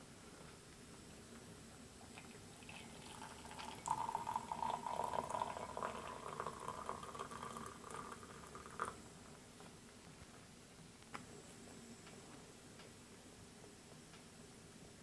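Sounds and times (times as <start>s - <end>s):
hot water pouring into mug: 2.1s - 9.0s.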